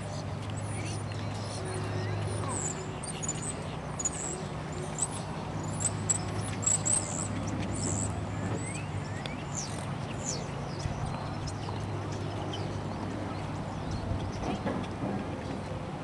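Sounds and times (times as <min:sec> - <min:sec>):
small birds chirping: 0:00.1 - 0:14.7.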